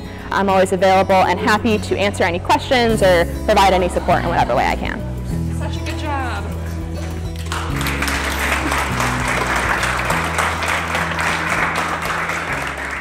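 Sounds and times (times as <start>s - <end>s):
music with held low notes: 0.0s - 13.0s
crowd applauding: 7.3s - 13.0s.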